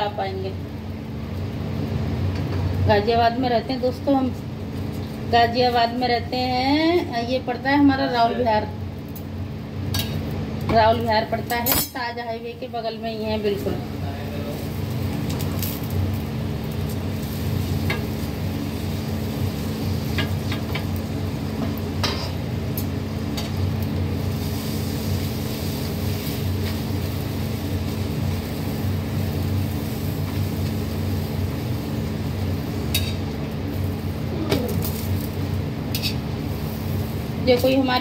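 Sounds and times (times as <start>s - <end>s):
electric fan humming: 0.0s - 38.0s
flatbread frying in oil: 13.6s - 38.0s.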